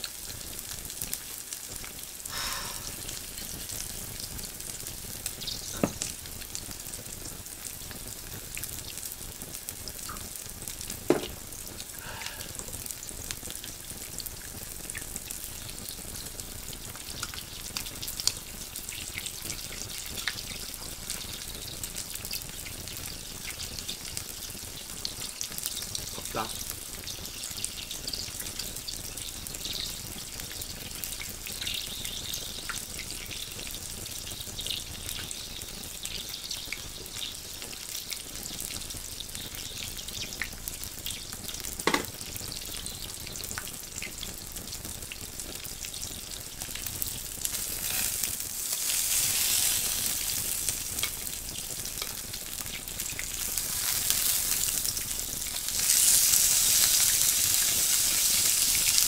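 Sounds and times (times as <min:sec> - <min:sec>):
meat sizzling in a grill pan: 0:00.0 - 0:59.0.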